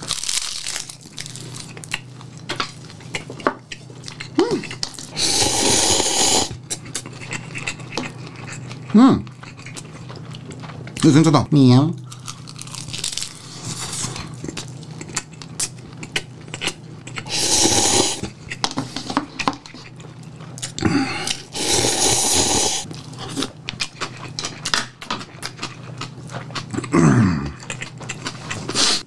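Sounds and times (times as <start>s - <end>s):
noodle slurping: 5.1s - 6.6s, 17.2s - 18.3s, 21.2s - 23.4s
chewing and mouth clicks: 6.7s - 11.2s, 12.1s - 17.3s, 22.8s - 26.9s, 27.6s - 28.8s.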